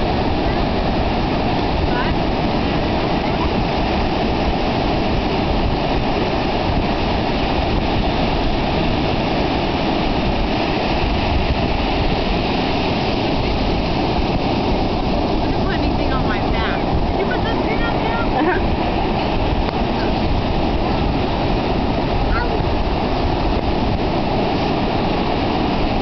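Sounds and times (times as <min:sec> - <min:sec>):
ocean surf breaking: 0:00.0 - 0:26.0
wind: 0:00.0 - 0:26.0.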